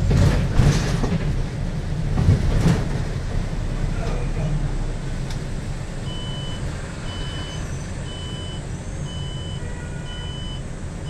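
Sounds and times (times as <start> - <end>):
bus engine and tyres rumbling: 0.0 - 11.0
short high warning beeps: 6.1 - 10.7.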